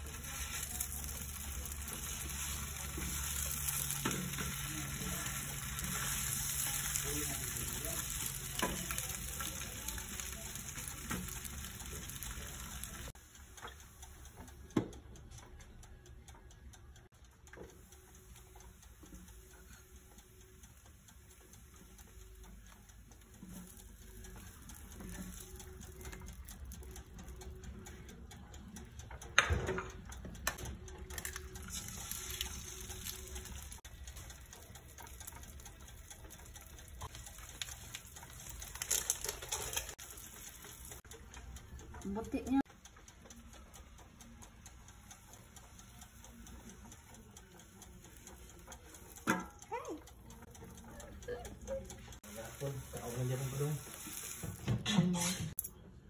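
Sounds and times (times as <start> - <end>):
meat sizzling on grill: 0.0 - 14.4, 17.7 - 27.0, 31.1 - 41.4, 44.9 - 55.5
tongs clicking: 0.0 - 54.6.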